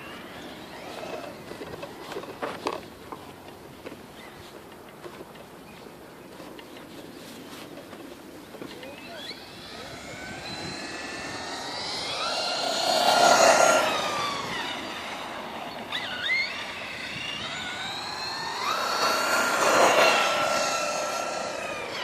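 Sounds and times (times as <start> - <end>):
electric motor and gears whining: 0.0 - 2.7, 8.5 - 22.0.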